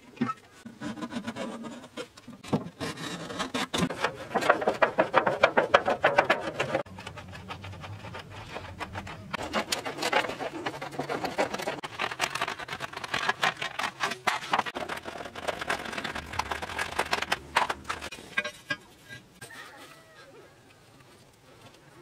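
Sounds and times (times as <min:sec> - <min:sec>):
sheet metal scraping and rattling: 0:02.7 - 0:19.4.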